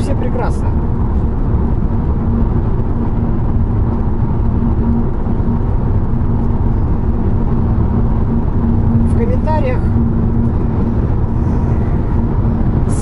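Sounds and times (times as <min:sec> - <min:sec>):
engine hum: 0:00.0 - 0:13.0
tyre and wind roar: 0:00.0 - 0:13.0.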